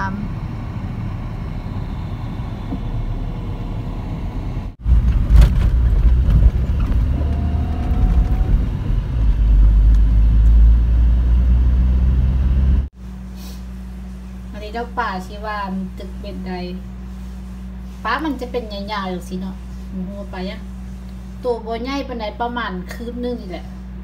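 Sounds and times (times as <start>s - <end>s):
distant traffic rumble: 0.0s - 12.9s
car driving on road: 1.6s - 12.9s.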